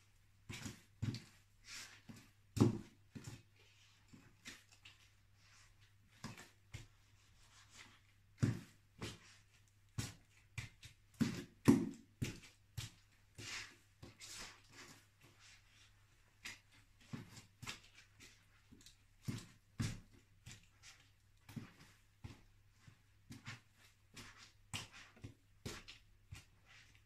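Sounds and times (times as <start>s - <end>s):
boot heels thudding on floor: 11.2s - 12.4s.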